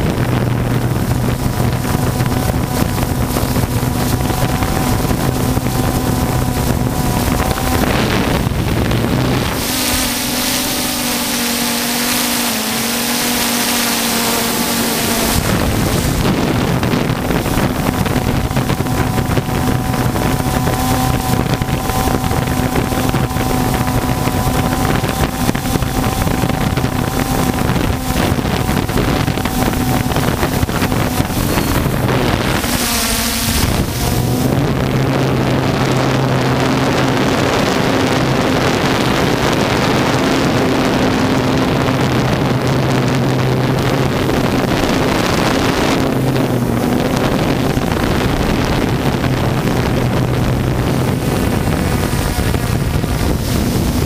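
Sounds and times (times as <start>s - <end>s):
drone propellers humming: 0.0s - 54.0s
wind noise: 0.0s - 54.0s.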